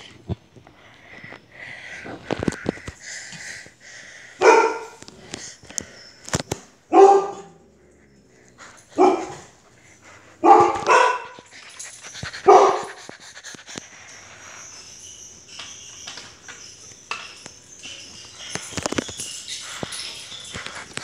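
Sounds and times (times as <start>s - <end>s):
faint clicks and rustling: 0.0s - 4.0s, 4.9s - 6.8s, 7.9s - 21.0s
dog barking: 4.4s - 5.0s, 6.9s - 7.6s, 9.0s - 9.5s, 10.4s - 11.5s, 12.4s - 13.1s.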